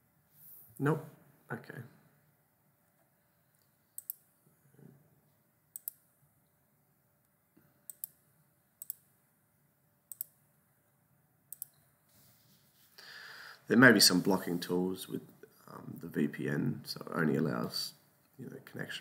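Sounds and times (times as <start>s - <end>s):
computer mouse clicks: 3.6s - 4.3s, 5.7s - 6.0s, 7.9s - 8.2s, 8.8s - 9.1s, 10.1s - 10.4s, 11.5s - 11.8s.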